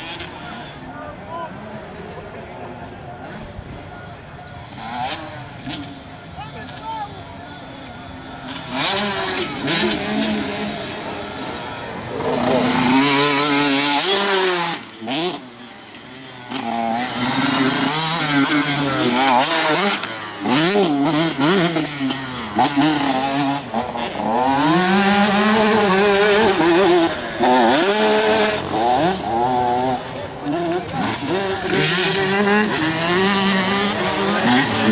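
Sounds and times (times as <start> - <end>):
motocross bike engines revving: 0.0 - 34.9.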